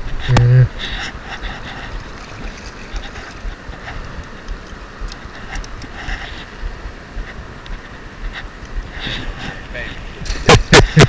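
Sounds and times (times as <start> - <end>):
wind rumble on microphone: 0.0 - 11.0
water splashing around a fish: 1.7 - 3.7.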